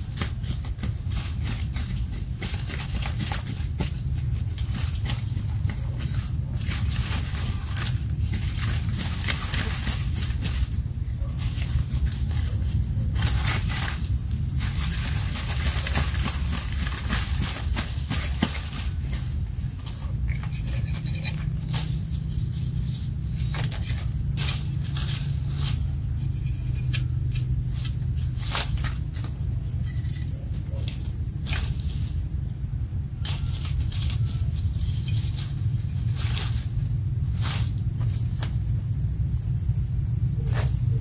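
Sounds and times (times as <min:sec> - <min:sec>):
dry leaves and twigs crackling: 0:00.0 - 0:41.0
steady low rumble: 0:00.0 - 0:41.0.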